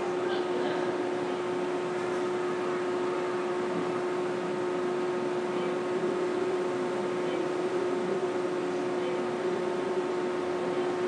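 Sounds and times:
machinery hum: 0:00.0 - 0:11.0.

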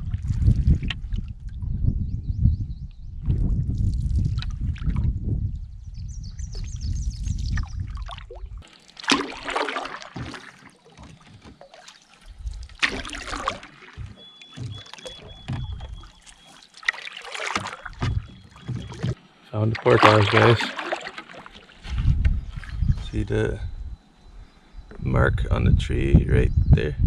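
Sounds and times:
paddle strokes splashing water: 0:07.5 - 0:22.8.

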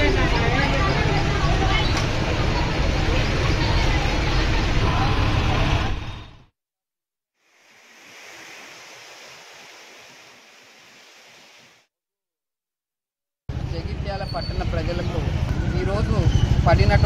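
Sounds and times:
diesel engine running: 0:00.0 - 0:06.5.

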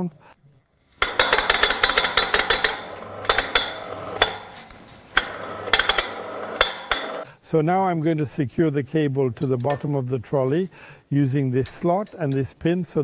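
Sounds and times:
sharp metallic knocks: 0:01.0 - 0:04.6, 0:05.2 - 0:07.2
steel cable rattling over pulleys: 0:01.0 - 0:07.2.

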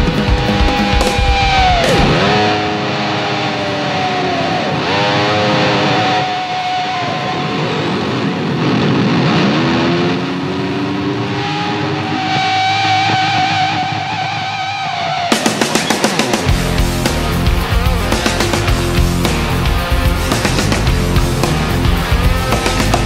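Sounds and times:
drums: 0:00.0 - 0:02.8, 0:15.2 - 0:23.0
guitar notes diving in pitch: 0:00.0 - 0:23.0
rock music: 0:00.0 - 0:23.0.

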